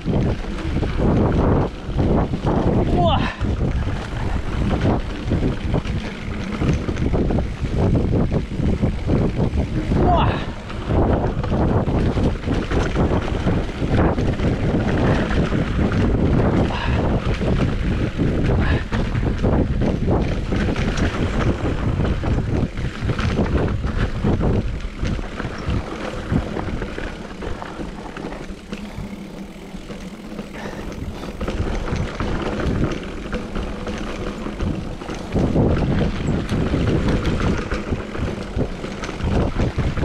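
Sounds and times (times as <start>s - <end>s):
bike clattering over rough trail: 0.0s - 40.0s
wind rushing over microphone: 0.0s - 40.0s.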